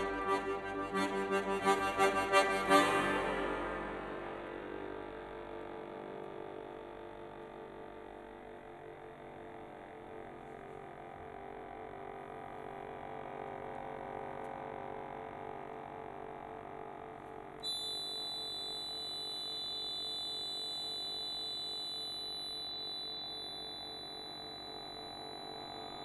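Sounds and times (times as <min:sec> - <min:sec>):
high piercing accordion notes: 0:00.0 - 0:04.9
accordions holding chords: 0:00.0 - 0:05.4.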